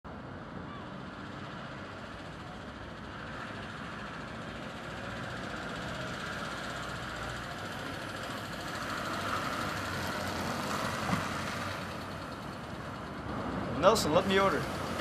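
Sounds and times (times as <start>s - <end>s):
small car driving slowly: 0.1s - 15.0s.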